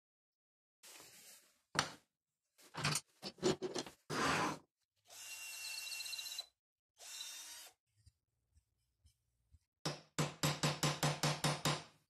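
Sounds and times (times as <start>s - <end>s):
tools clattering on workbench: 2.8s - 4.0s
cordless drill whining: 5.1s - 6.4s.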